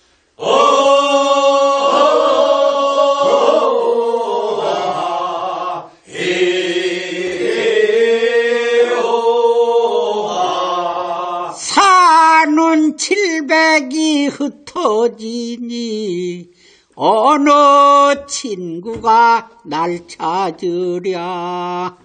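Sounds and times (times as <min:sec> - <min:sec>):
group of voices singing: 0:00.4 - 0:12.3.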